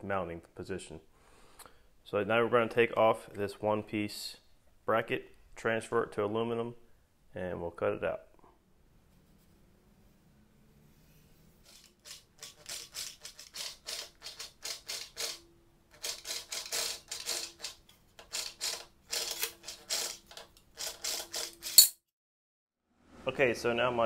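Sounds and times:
metal shear chattering: 11.7s - 22.0s.

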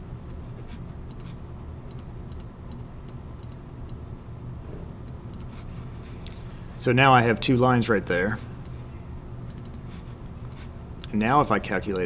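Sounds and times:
computer mouse clicks: 1.1s - 4.0s, 5.1s - 5.6s, 9.5s - 9.8s.

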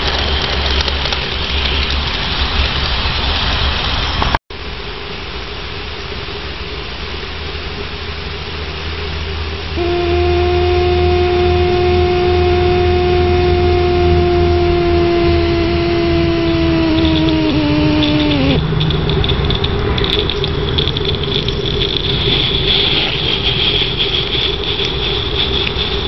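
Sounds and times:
model steam locomotive hissing: 9.8s - 18.6s, 20.1s - 26.0s
steam whistle long note: 9.8s - 18.6s.

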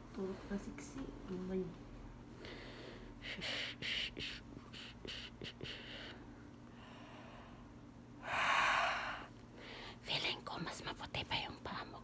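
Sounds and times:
person breathing: 2.4s - 10.0s.

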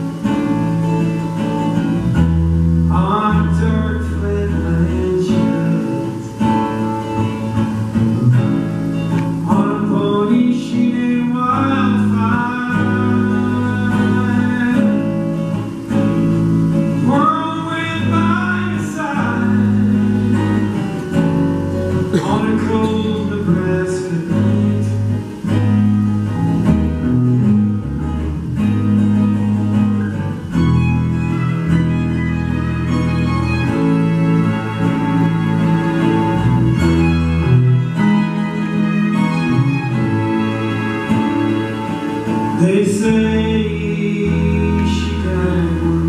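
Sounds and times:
acoustic guitar strummed and picked: 0.0s - 46.0s
violin and cello playing: 30.3s - 46.0s.

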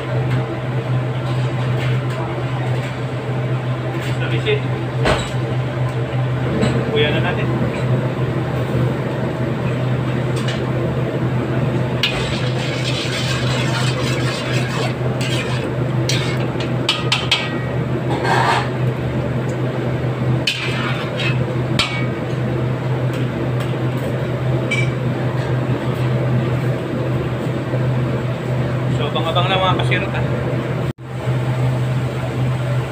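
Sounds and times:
steady low hum: 0.0s - 32.9s
metal ladle scraping a wok: 12.0s - 16.5s, 18.1s - 18.8s, 20.5s - 21.4s.

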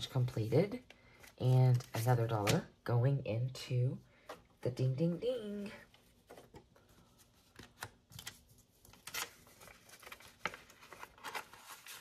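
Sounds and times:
paper bill rustling: 6.2s - 12.0s.

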